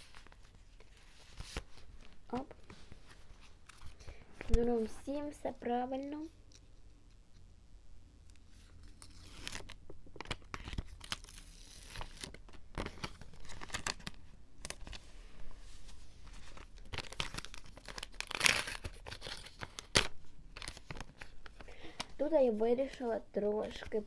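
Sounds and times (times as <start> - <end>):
paper rustling and crinkling: 0.0 - 5.0, 8.5 - 22.2
tape peeling from paper: 8.6 - 14.2.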